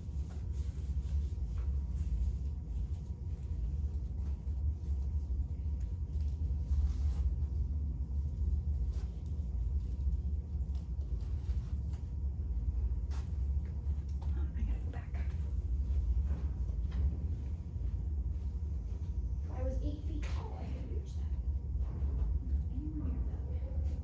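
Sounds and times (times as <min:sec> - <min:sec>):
low room rumble: 0:00.0 - 0:24.0.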